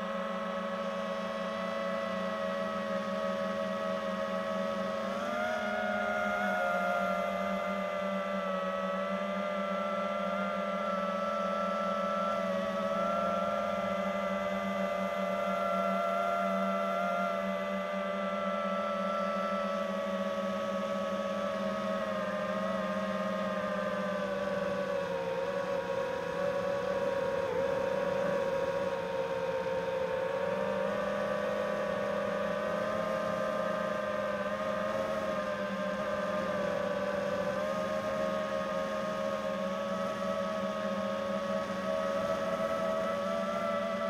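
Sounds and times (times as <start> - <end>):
drone motors whining: 0.2 - 44.0.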